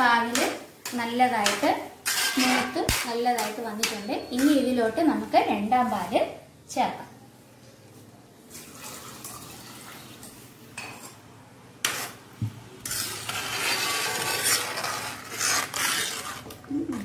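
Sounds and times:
metal ladle stirring and scraping: 0:00.2 - 0:06.1, 0:10.2 - 0:17.0.

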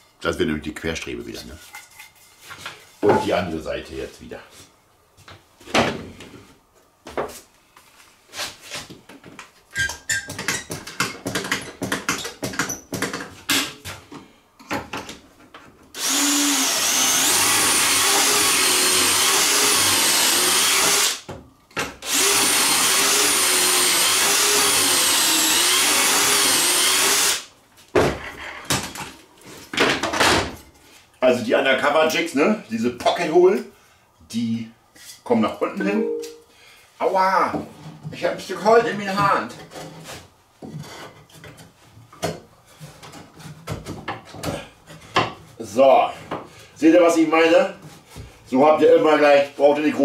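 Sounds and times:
power drill boring: 0:16.0 - 0:21.2, 0:22.0 - 0:27.5
wood knocking and clattering: 0:27.9 - 0:30.6, 0:40.6 - 0:45.4.

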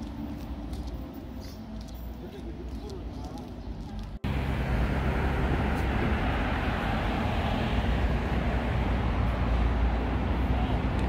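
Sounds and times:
low rumble of traffic: 0:00.0 - 0:11.0.

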